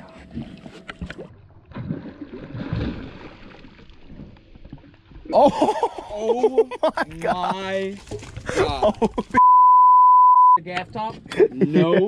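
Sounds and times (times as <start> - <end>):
water splashing against boat: 0.0 - 5.7.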